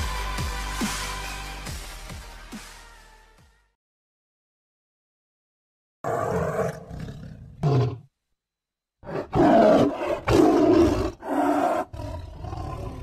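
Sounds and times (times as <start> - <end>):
tiger roaring: 6.0 - 8.1, 9.0 - 13.0
big cat growl: 6.1 - 8.1, 9.0 - 13.0.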